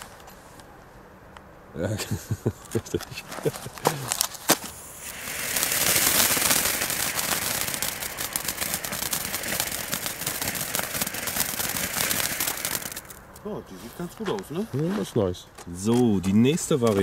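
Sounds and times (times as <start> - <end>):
firework fountain hissing and crackling: 2.0 - 13.4.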